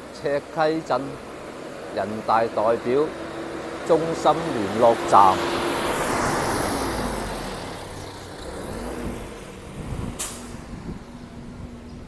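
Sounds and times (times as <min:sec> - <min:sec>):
engines running on street: 0:00.0 - 0:12.0
vehicle passing close by: 0:01.2 - 0:12.0
short sharp hiss: 0:10.2 - 0:10.6.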